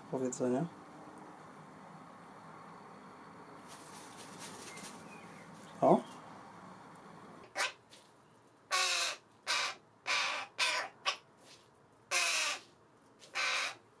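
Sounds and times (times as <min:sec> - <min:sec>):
crow cawing harshly: 0:07.4 - 0:07.8, 0:08.7 - 0:11.2, 0:12.1 - 0:12.7, 0:13.3 - 0:13.8.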